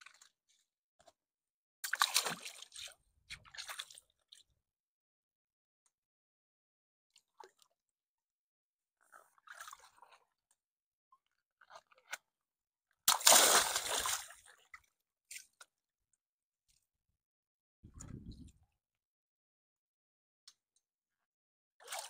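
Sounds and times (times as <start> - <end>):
faint water and handling sounds: 0.0 - 4.7, 7.1 - 8.3, 8.9 - 13.0, 13.7 - 17.1, 17.8 - 18.8
water splashing into pool: 13.1 - 14.4.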